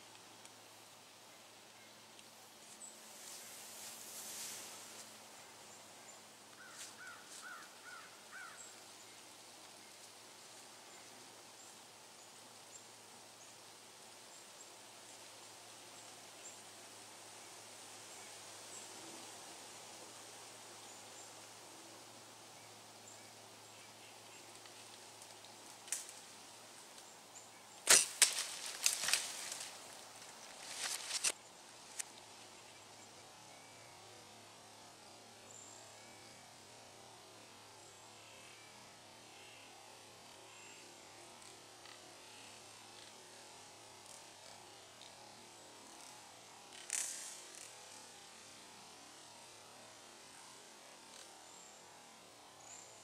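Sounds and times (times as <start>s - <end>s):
faint woodland ambience: 0.0s - 53.0s
bow shot snap: 27.8s - 29.3s
clicks and rustles: 27.9s - 32.2s.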